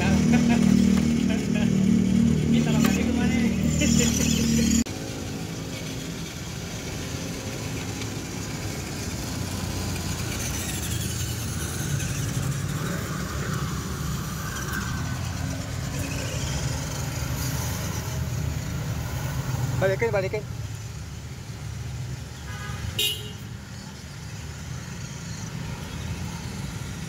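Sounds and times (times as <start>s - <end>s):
toy truck motors whirring: 2.6s - 20.0s.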